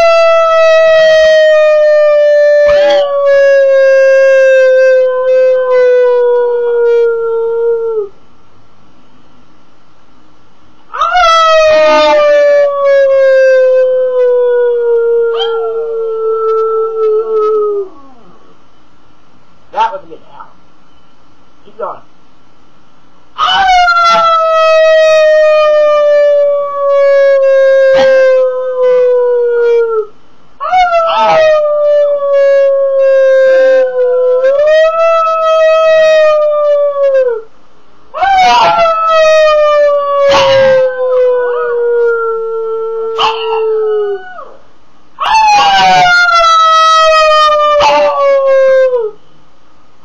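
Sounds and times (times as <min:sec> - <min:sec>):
long loud howl: 0:00.0 - 0:08.2, 0:10.9 - 0:18.5, 0:23.4 - 0:37.5, 0:38.1 - 0:49.2.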